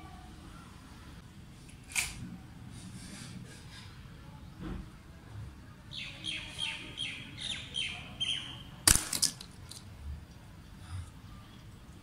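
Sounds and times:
bird chirping: 5.9 - 8.7
air rifle shot crack: 8.9 - 9.4
battery clinking on concrete: 8.9 - 9.9.

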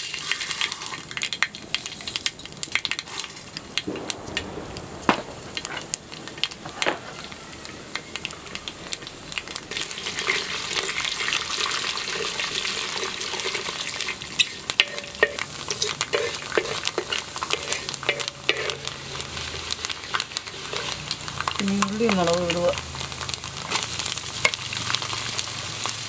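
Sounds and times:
spatula stirring rice: 0.0 - 2.2, 9.7 - 22.3
seeds popping and sizzling in oil: 0.0 - 26.0.

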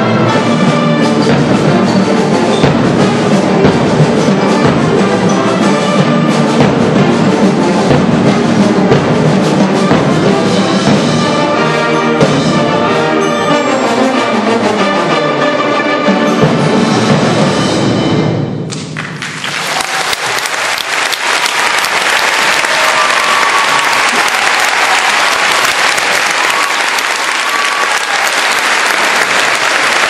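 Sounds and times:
audience applause: 18.7 - 30.0.

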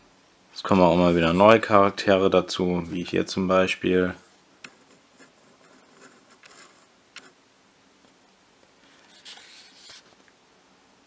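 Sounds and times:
fingers rubbing paper page: 8.8 - 10.2.

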